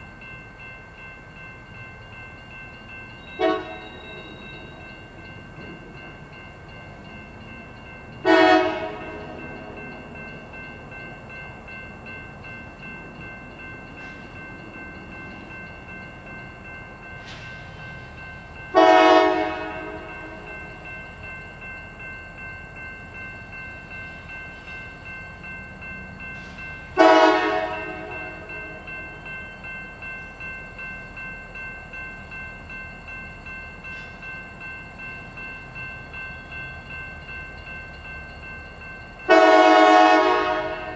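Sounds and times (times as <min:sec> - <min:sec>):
locomotive bell ringing: 0:00.0 - 0:40.9
train rumble: 0:00.0 - 0:40.9
train horn blasts: 0:03.4 - 0:04.8, 0:08.2 - 0:09.4, 0:18.7 - 0:20.5, 0:27.0 - 0:28.5, 0:39.3 - 0:40.9.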